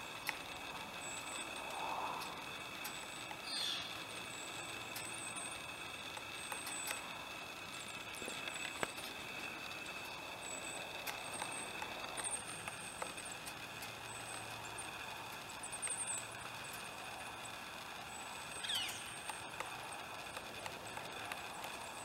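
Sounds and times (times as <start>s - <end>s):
lens stabilizer whine: 0.0s - 22.0s
faint high chirps: 0.8s - 19.5s
woodpecker pecking bark: 18.4s - 21.9s.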